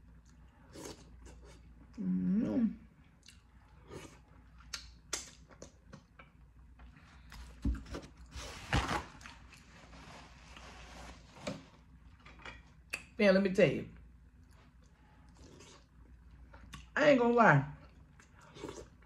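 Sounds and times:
person chewing: 3.1 - 6.2, 14.4 - 16.9, 17.9 - 19.0.

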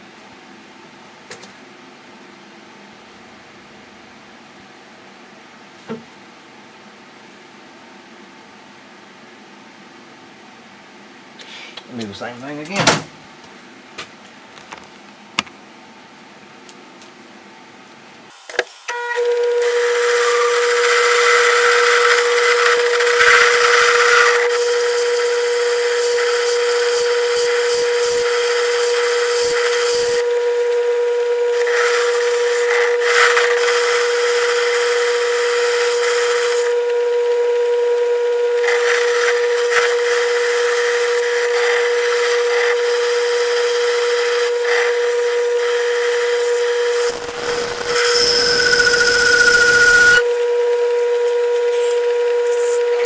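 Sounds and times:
metal lathe humming: 44.4 - 50.4
hissing cutting noise: 46.9 - 50.2.

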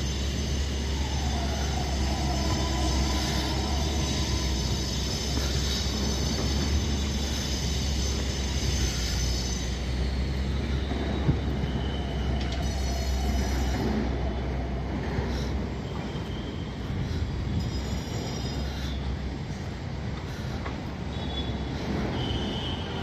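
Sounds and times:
low vehicle rumble: 0.0 - 17.6
traffic noise: 0.0 - 23.0.

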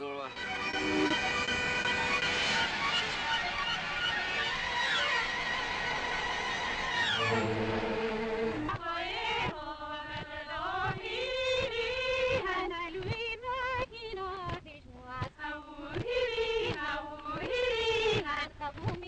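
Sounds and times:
women singing together: 8.6 - 19.0.

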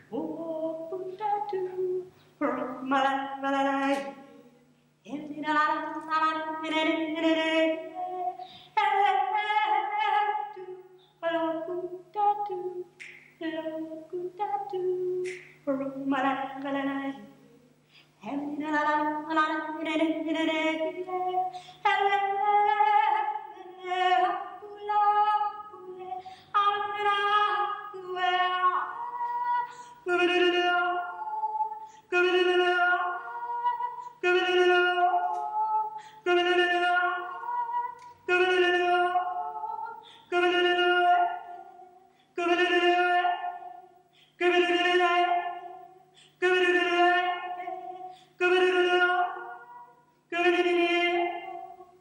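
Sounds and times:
woman singing unaccompanied: 0.0 - 52.0
singer breathing: 8.4 - 8.8, 17.8 - 18.2, 29.7 - 30.0, 36.0 - 36.2, 48.0 - 48.4.

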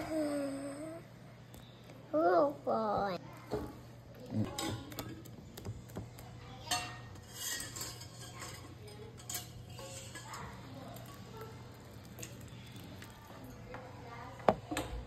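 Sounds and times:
whisk clinking against bowl: 6.7 - 11.2.

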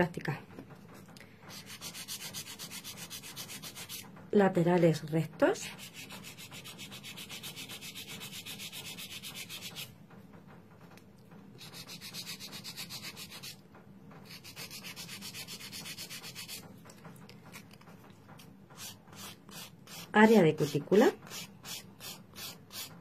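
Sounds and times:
nail file rubbing on nail: 1.5 - 4.1, 5.6 - 9.9, 11.6 - 13.6, 14.2 - 16.6, 18.8 - 23.0.

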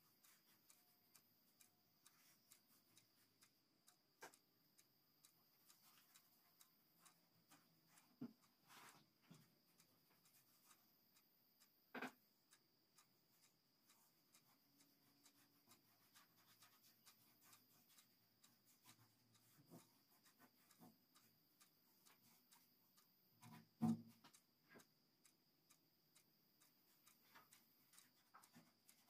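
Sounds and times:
soft ticks: 0.0 - 29.0.

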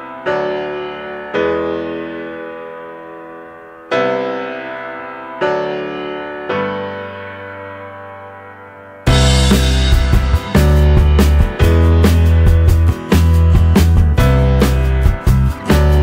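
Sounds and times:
slow piano chords: 0.0 - 16.0.

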